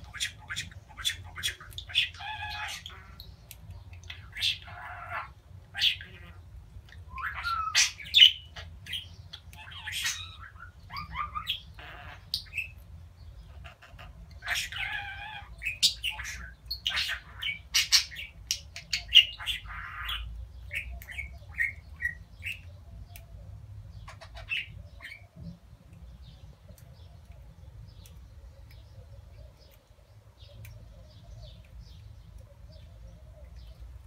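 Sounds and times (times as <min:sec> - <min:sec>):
budgerigars chattering: 0:00.0 - 0:03.3, 0:04.0 - 0:12.8, 0:13.4 - 0:22.7, 0:24.0 - 0:25.3.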